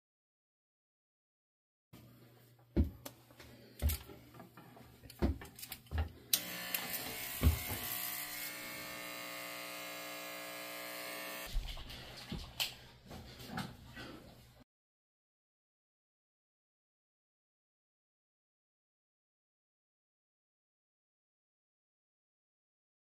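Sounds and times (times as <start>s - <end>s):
electric hair clippers buzzing: 6.3s - 11.5s.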